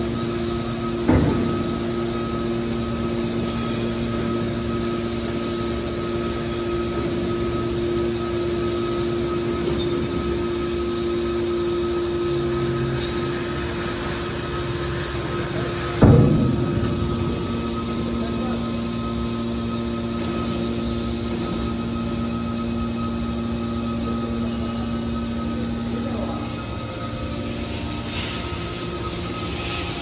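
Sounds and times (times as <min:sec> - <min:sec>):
hydraulic power unit humming: 0:00.0 - 0:30.0.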